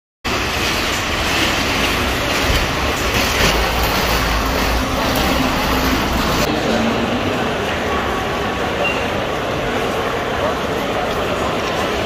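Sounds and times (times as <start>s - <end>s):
vehicle road noise rumble: 0.3s - 7.8s.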